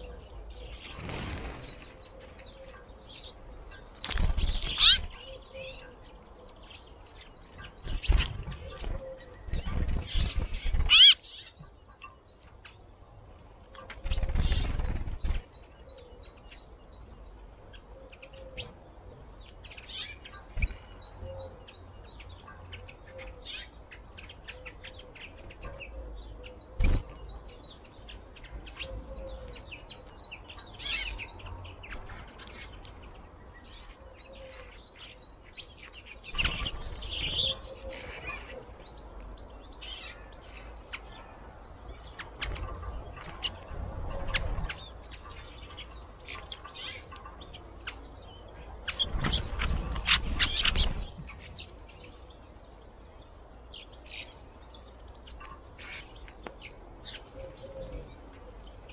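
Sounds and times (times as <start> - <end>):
songbirds chirping: 0.0 - 58.9.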